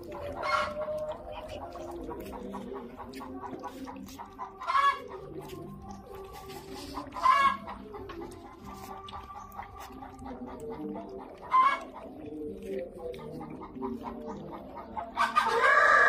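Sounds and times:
chickens clucking: 0.0s - 16.0s
puppies lapping milk: 0.0s - 16.0s.

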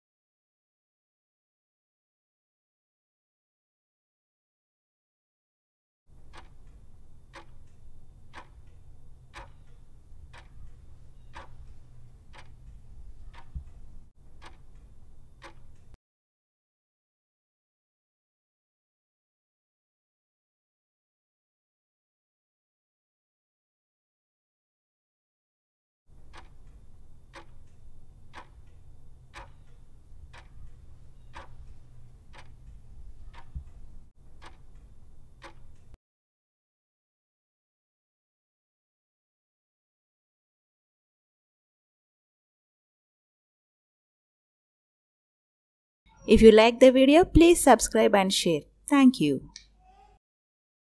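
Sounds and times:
clock ticking: 6.2s - 16.0s, 26.2s - 36.0s
low steady hum: 6.2s - 16.0s, 26.2s - 36.0s.

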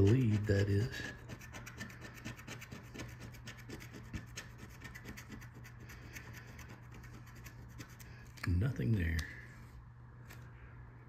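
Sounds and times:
coin scratching lottery ticket: 0.0s - 8.0s.

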